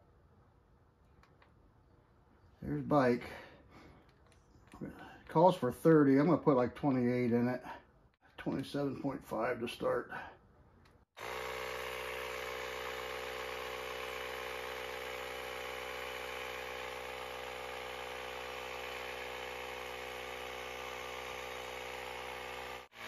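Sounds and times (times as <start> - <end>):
electric tire inflator compressor running: 11.1 - 23.0.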